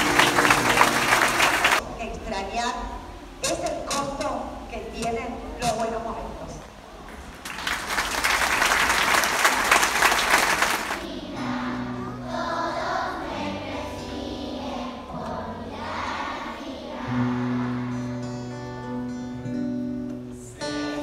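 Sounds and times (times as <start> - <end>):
audience applauding: 0.0 - 1.8, 7.4 - 11.1
instrumental accompaniment: 0.0 - 1.8
many voices singing together: 0.0 - 1.8, 11.0 - 18.3, 20.5 - 21.0.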